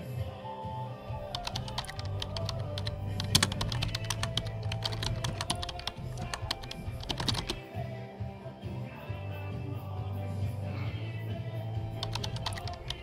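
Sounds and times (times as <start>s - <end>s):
background music with bass line: 1.0s - 13.0s
sharp rapid clicks: 1.2s - 7.6s, 12.0s - 13.0s.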